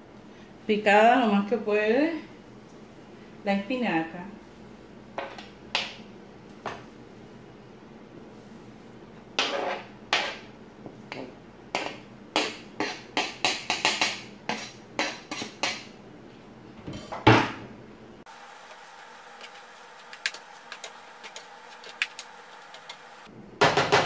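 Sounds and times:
utensil scraping cutting board: 18.7s - 23.1s.

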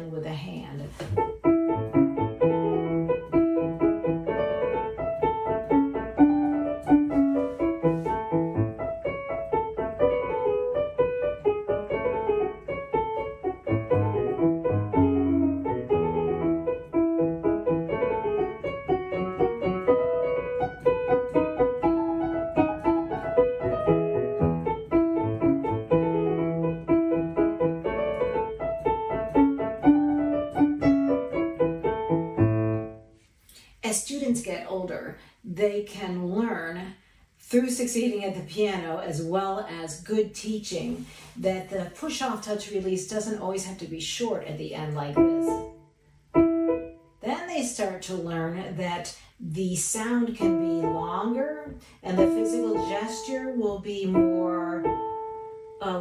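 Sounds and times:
grand piano playing: 1.1s - 33.2s, 45.0s - 47.2s, 50.2s - 56.0s.

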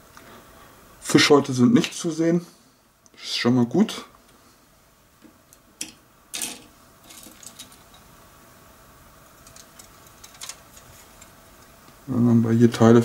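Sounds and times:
plastic parts clicking: 9.4s - 11.3s.

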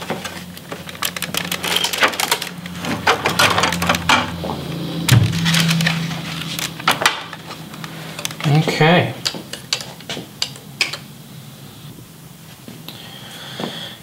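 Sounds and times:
steady low hum: 0.0s - 14.0s
plastic keyboard clicks and rattles: 0.2s - 4.3s.

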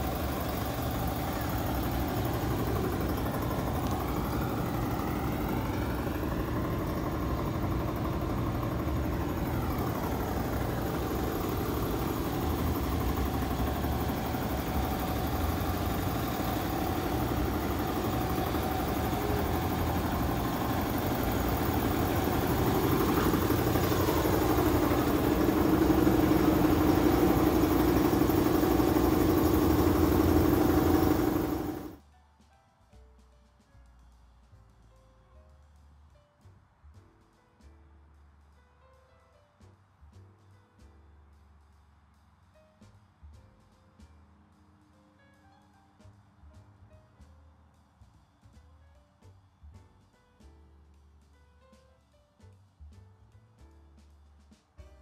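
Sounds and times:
engine idling: 0.0s - 32.0s.

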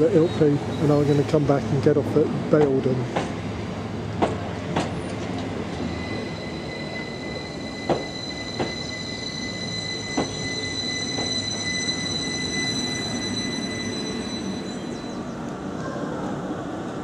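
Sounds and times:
train rumbling: 0.0s - 17.0s
high-pitched wheel squeal: 5.6s - 15.4s.

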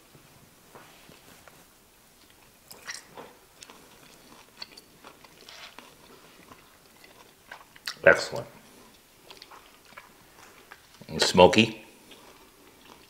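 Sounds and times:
person chewing meat: 2.2s - 11.2s, 11.9s - 13.0s.

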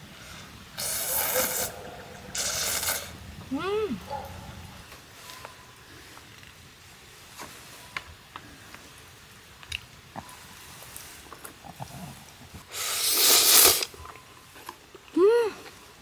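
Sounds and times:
noodle slurp: 0.8s - 3.2s, 11.7s - 14.0s.

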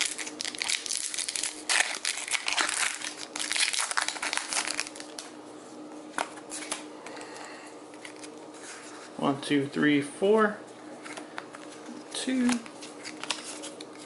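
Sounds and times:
sharp foil crackles: 0.0s - 5.2s
foil wrapper crinkling: 0.0s - 5.3s, 12.4s - 14.0s.

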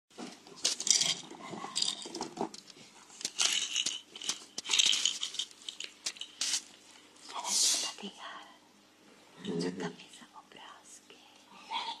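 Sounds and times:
plastic rattle toy shaken: 1.8s - 2.4s, 3.2s - 6.7s.

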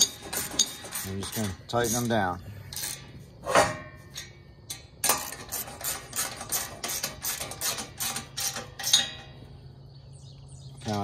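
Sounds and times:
ratcheting wrench clicking: 0.0s - 3.1s, 4.1s - 9.2s.

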